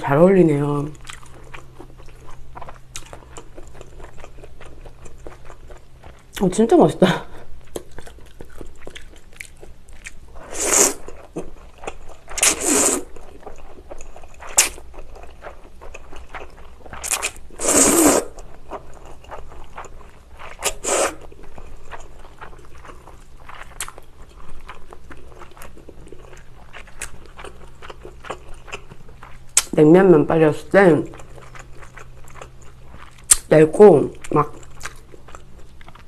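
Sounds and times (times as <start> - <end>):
wet chewing: 0.9 - 6.5, 7.6 - 29.8, 31.0 - 36.0
person slurping noodles: 10.4 - 11.0, 12.4 - 13.1, 17.6 - 18.4, 20.6 - 21.2.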